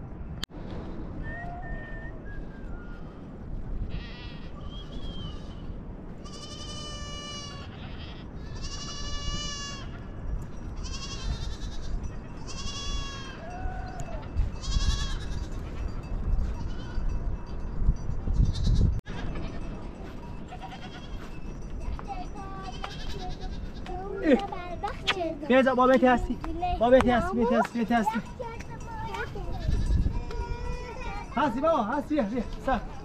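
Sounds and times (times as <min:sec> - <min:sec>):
livestock bleating: 0:03.9 - 0:05.6, 0:06.2 - 0:10.0, 0:10.8 - 0:15.5, 0:20.5 - 0:21.3, 0:22.6 - 0:23.9.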